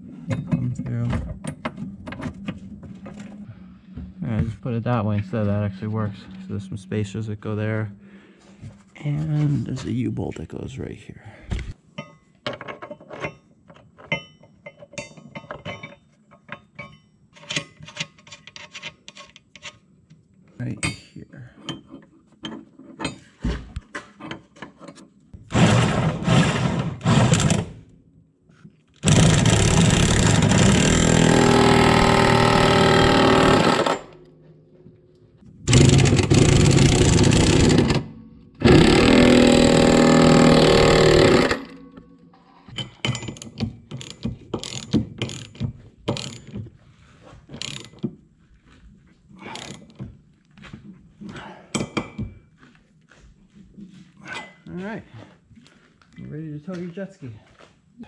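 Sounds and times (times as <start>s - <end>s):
power tool bursts: 25.5s - 27.8s, 29.0s - 34.2s, 35.7s - 41.8s.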